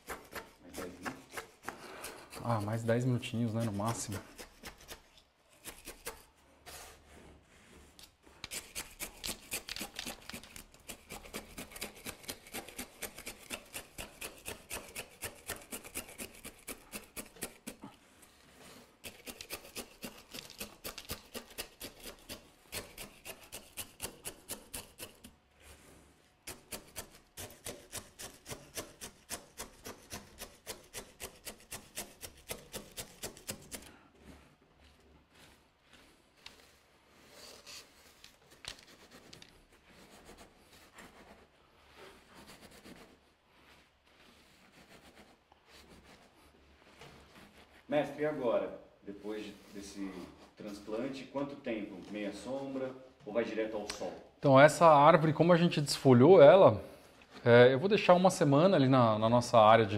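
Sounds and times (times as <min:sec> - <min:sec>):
scraping strokes in soil: 0:00.0 - 0:48.5.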